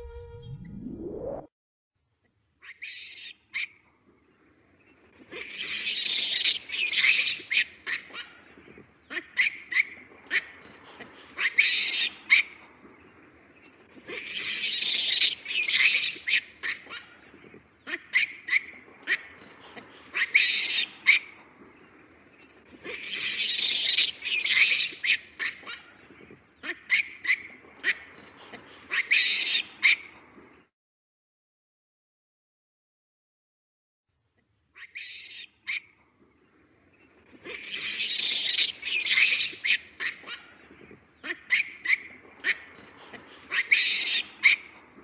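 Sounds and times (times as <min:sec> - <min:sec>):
baby baboon screaming: 0:11.4 - 0:12.5, 0:28.9 - 0:30.0.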